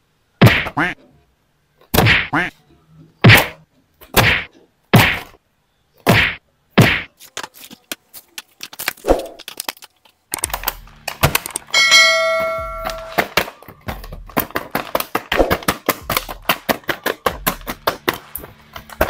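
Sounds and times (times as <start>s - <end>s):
plastic crinkling and clicks: 7.2s - 11.7s.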